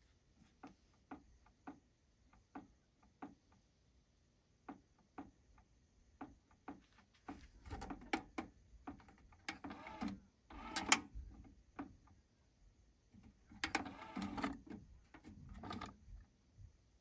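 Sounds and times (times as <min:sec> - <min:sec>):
cassette deck clicking: 0:07.7 - 0:11.9, 0:13.3 - 0:16.0.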